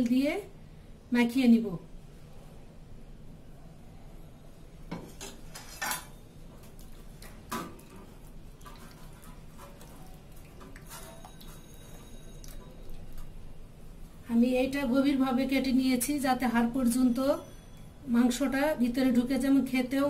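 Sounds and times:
metal spoon clinking glass bowl: 10.8s - 13.0s.

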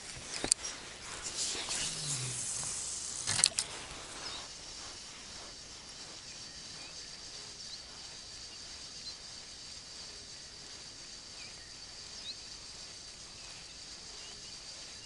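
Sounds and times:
fishing rod rustling: 0.0s - 6.0s
reel clicks: 0.2s - 4.4s.

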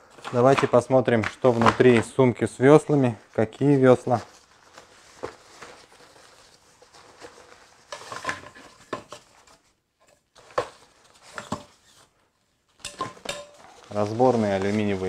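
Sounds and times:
fabric bag rustling: 3.1s - 9.6s, 13.2s - 15.0s.

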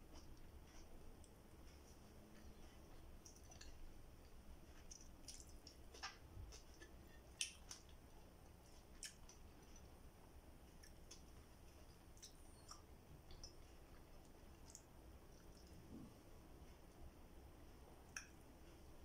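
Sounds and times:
chewing with mouth clicks: 0.1s - 9.9s, 10.7s - 16.0s.

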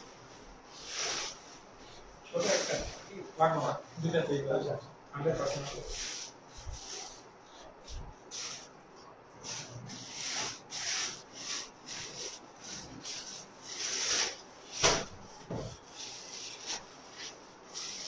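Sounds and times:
plastic wrapping rustling: 0.2s - 4.4s, 5.2s - 8.7s, 9.4s - 18.0s.

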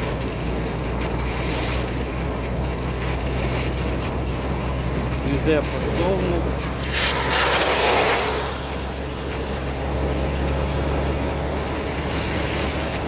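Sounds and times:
car engine and tyre drone: 0.0s - 13.0s
passing car wet hiss: 6.8s - 11.3s.

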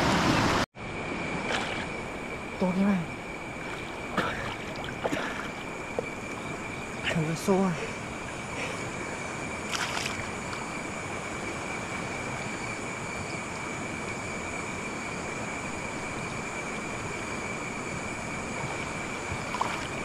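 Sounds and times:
stream water rushing: 0.0s - 20.0s.

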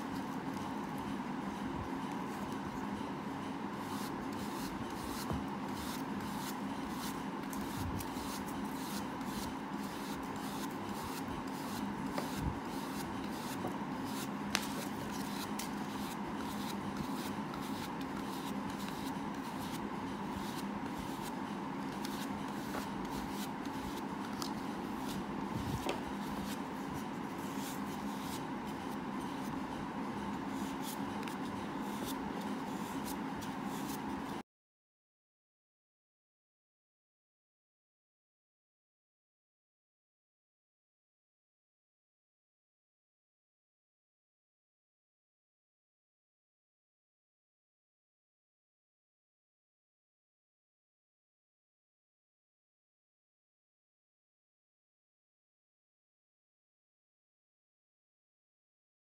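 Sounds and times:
paintbrush strokes: 0.0s - 34.4s
steady background hum: 0.0s - 34.4s.

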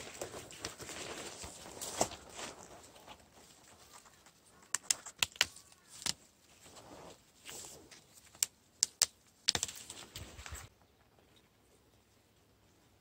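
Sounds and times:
leaves rustling: 0.0s - 8.4s
branches snapping and clicking: 3.8s - 6.3s, 8.2s - 10.6s.

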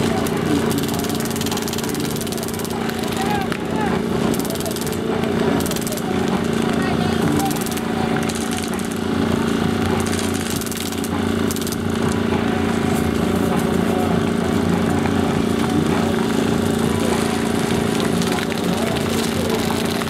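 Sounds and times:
droning engine hum: 0.0s - 20.0s
people shouting: 3.1s - 4.0s
airsoft gunfire: 5.6s - 6.2s.

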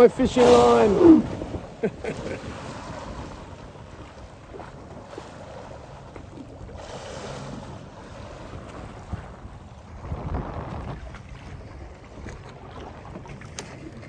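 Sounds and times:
rush of noise: 0.0s - 1.5s
wind on microphone: 0.0s - 5.3s, 6.3s - 13.2s
sea water sloshing: 0.0s - 14.0s
whale churning whitewater: 0.0s - 14.0s.

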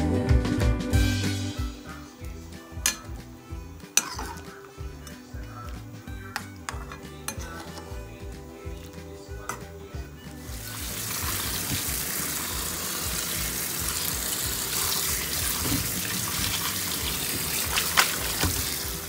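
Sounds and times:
tap water running into colander: 10.4s - 19.0s.

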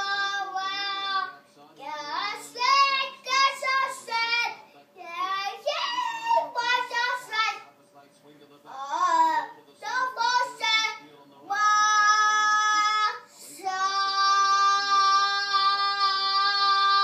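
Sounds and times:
girl singing: 11.6s - 17.0s.

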